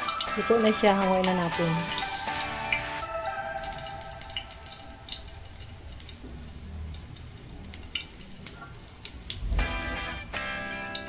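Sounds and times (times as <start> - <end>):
oil sizzling in wok: 0.0 - 11.0
spattering oil popping: 0.0 - 11.0.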